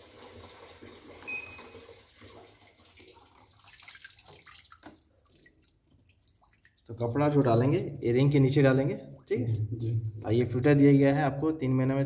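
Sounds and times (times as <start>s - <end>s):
water splashing in washing machine: 0.0s - 10.8s
water dripping and trickling: 0.0s - 11.2s
short high beep: 1.3s - 1.8s.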